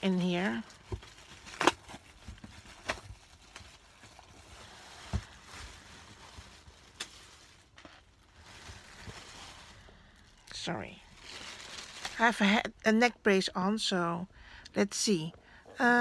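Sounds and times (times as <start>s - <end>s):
plastic wrapping crinkling: 0.0s - 12.7s.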